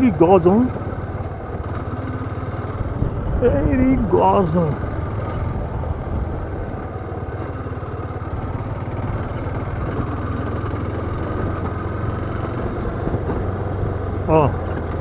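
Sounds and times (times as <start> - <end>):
motorcycle engine running: 0.0 - 15.0
rush of travel: 0.0 - 15.0.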